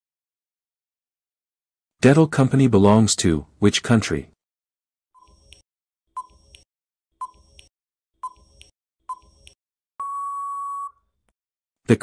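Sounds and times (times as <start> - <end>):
long steady beep: 10.0 - 11.0.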